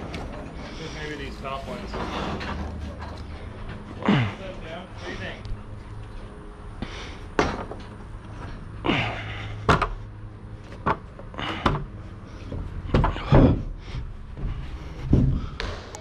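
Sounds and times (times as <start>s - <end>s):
knocks and clanks on steel scaffold: 7.4s - 8.6s, 9.6s - 10.0s, 10.7s - 13.8s.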